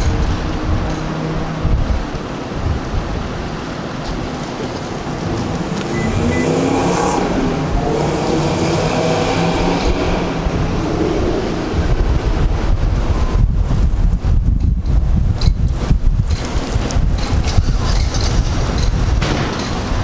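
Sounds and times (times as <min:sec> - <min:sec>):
vehicle engine: 0:00.0 - 0:14.4
street traffic: 0:00.0 - 0:20.0
wind rumbling on microphone: 0:00.0 - 0:20.0.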